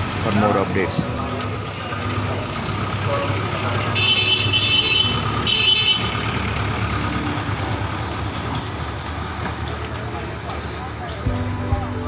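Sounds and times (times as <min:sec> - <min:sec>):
tractor engine running: 0:00.0 - 0:12.0
tractor horn honking: 0:03.9 - 0:06.4.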